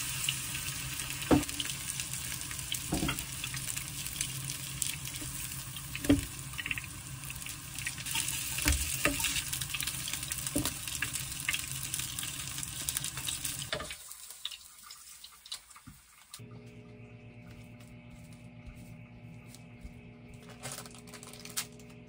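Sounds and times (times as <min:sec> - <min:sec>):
food sizzling in oil: 0:00.0 - 0:16.4.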